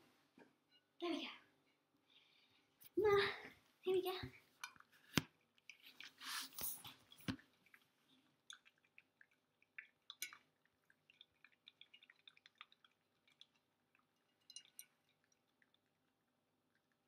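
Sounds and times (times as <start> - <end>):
puppy chewing and lapping: 4.7 - 17.0.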